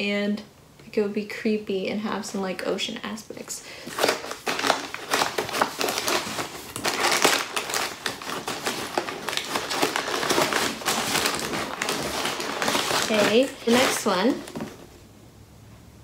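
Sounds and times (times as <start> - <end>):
packing material crinkling: 3.7 - 15.0.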